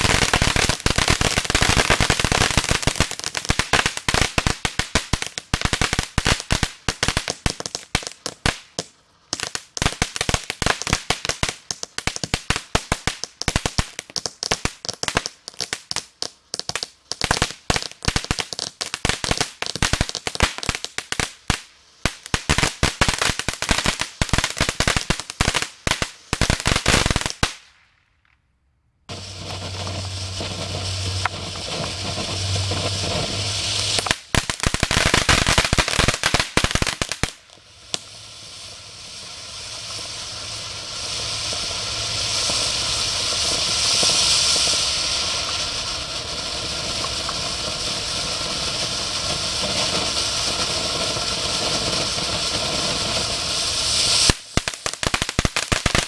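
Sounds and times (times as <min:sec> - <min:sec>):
spraying hiss of sparks fountain: 0:00.0 - 0:08.7, 0:29.1 - 0:56.0
firework crackling pops: 0:00.0 - 0:28.5, 0:29.1 - 0:56.0.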